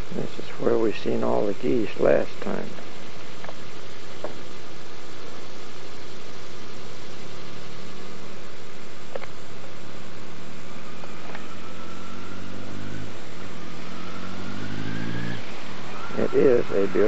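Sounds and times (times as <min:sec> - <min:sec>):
faint rising whine: 0:00.0 - 0:17.0
vehicle engine running: 0:10.8 - 0:17.0.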